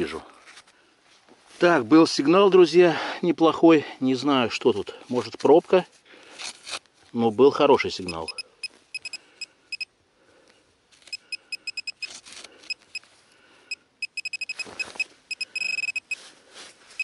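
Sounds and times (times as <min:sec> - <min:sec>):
soil scraping: 0:05.0 - 0:07.6, 0:12.0 - 0:13.2
pinpointer probe beeping: 0:08.0 - 0:09.9, 0:11.0 - 0:13.1, 0:13.7 - 0:16.2.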